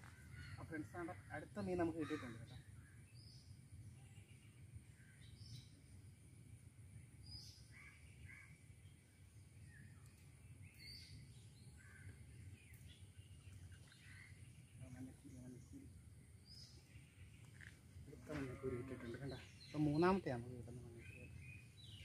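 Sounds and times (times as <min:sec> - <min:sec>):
low outdoor hum: 0:00.0 - 0:22.0
bird chirps and calls: 0:18.4 - 0:22.0.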